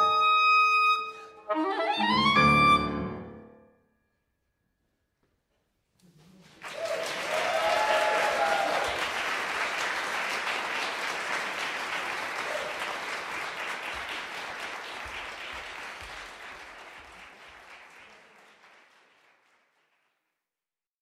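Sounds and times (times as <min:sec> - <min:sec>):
audience applause: 0:06.1 - 0:20.2.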